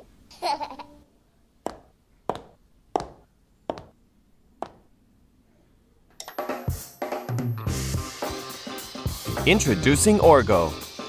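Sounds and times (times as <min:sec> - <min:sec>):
sharp taps: 0:01.7 - 0:04.0, 0:04.6 - 0:04.8.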